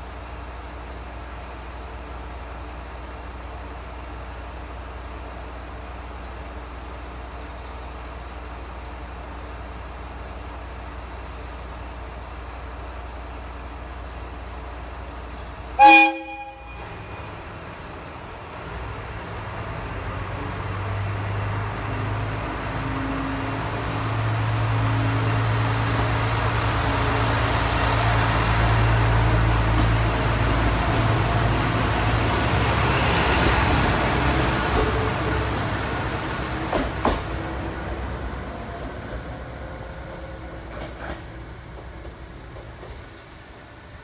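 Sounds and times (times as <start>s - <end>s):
train horn blast: 15.8s - 17.2s.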